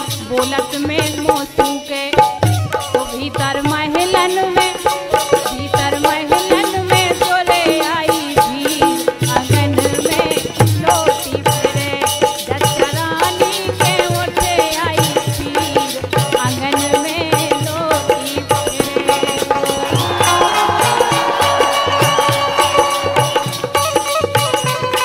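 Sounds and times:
hand drum and rattle percussion: 0:00.0 - 0:25.0
held high note: 0:19.8 - 0:25.0.

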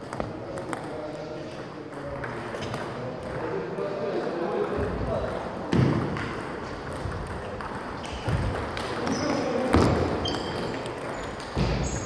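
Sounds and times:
table tennis balls knocking: 0:04.7 - 0:12.0.

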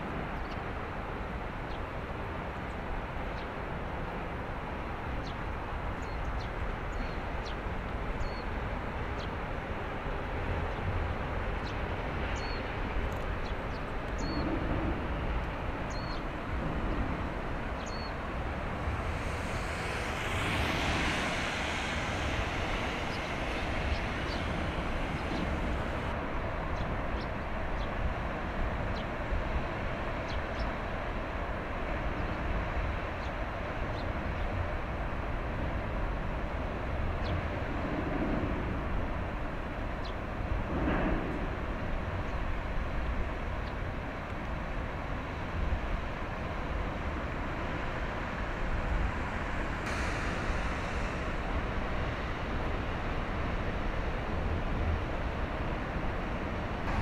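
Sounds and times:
water moving along hull: 0:08.8 - 0:26.2, 0:45.3 - 0:57.0
ship engine rumble: 0:11.2 - 0:26.7, 0:45.2 - 0:57.0
rushing hiss: 0:15.8 - 0:26.2, 0:46.8 - 0:54.8, 0:55.8 - 0:57.0.

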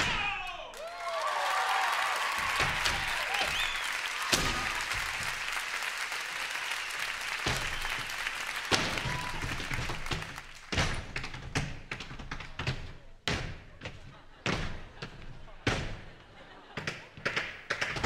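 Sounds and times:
audience applauding: 0:00.6 - 0:10.8.

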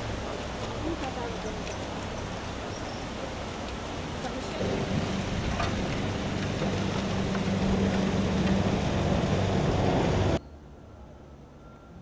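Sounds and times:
road and wind noise: 0:00.0 - 0:12.0
vehicle engine running: 0:04.2 - 0:10.4.

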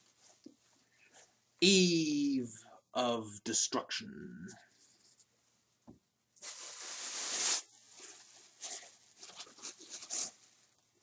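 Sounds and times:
gift bag rustling: 0:06.4 - 0:10.6.

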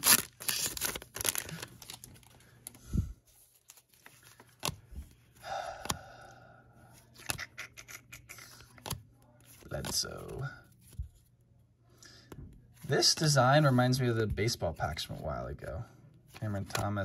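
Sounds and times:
cards rustling and sliding: 0:00.0 - 0:06.0, 0:07.0 - 0:11.3, 0:16.3 - 0:17.0.

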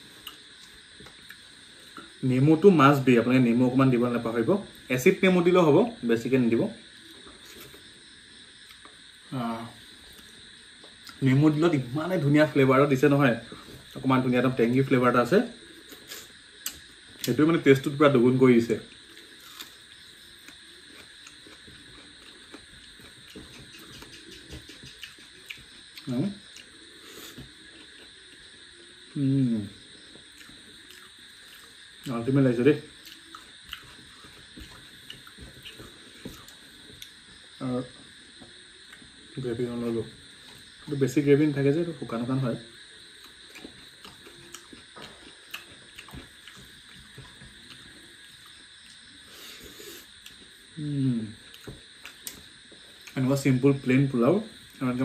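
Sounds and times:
faint hiss: 0:00.0 - 0:55.0
person chewing: 0:00.2 - 0:02.1, 0:18.9 - 0:28.4, 0:30.2 - 0:32.1, 0:33.0 - 0:37.2, 0:43.2 - 0:50.5, 0:51.4 - 0:53.2.

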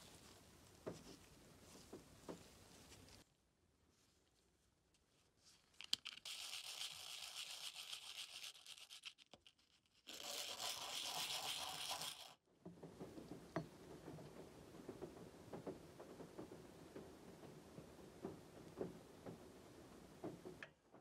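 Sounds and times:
quiet rustling: 0:00.0 - 0:06.2
metal rubbed on sandpaper: 0:06.2 - 0:12.4.

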